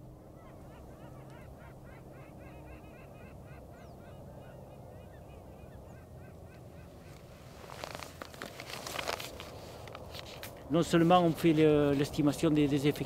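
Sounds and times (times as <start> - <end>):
waterfowl calling: 0.0 - 8.2.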